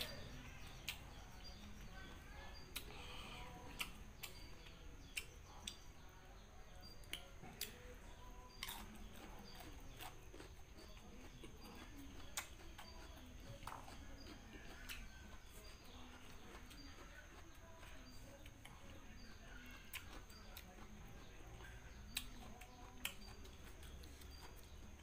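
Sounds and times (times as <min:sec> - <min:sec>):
faint bird chirps: 0:00.0 - 0:25.0
mouth chewing: 0:00.0 - 0:25.0
lip smacks and clicks: 0:02.7 - 0:03.0, 0:03.7 - 0:05.9.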